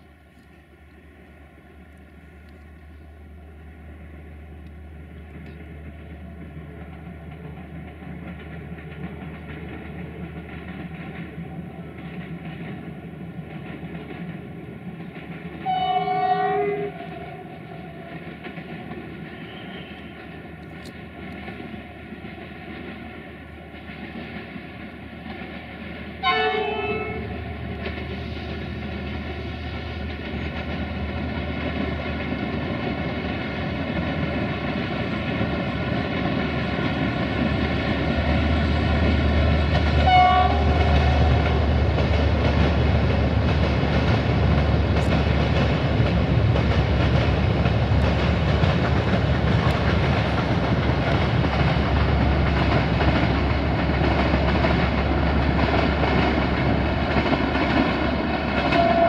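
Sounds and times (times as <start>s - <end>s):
diesel train engine rumble: 0.0s - 59.0s
train horn toot: 15.6s - 18.1s, 19.4s - 20.2s, 26.2s - 27.4s, 40.0s - 41.4s, 58.6s - 59.0s.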